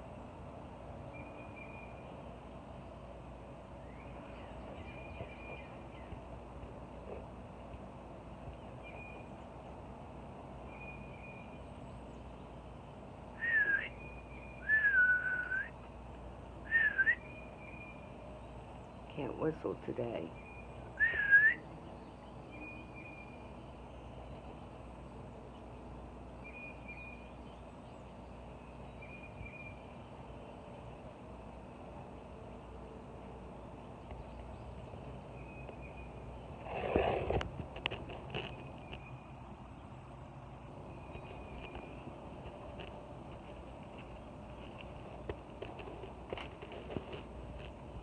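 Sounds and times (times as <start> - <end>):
low outdoor rumble: 0.0 - 48.0
high whistled call: 13.4 - 15.8, 16.7 - 18.0, 20.4 - 21.6.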